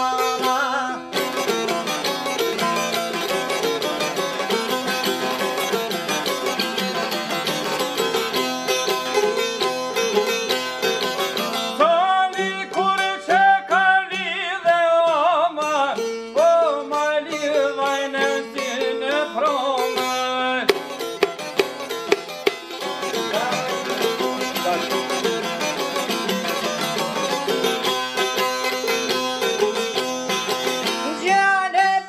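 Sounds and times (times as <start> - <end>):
man singing: 0.0 - 1.5, 11.8 - 21.0, 23.0 - 27.4, 30.9 - 32.0
plucked lutes: 0.0 - 32.0.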